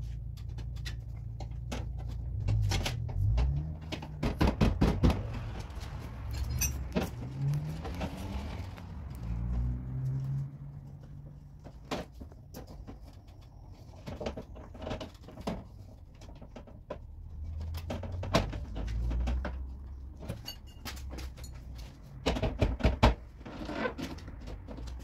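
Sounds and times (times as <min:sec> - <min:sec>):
knocks and rattles in car door: 0:01.6 - 0:05.5, 0:22.2 - 0:23.3.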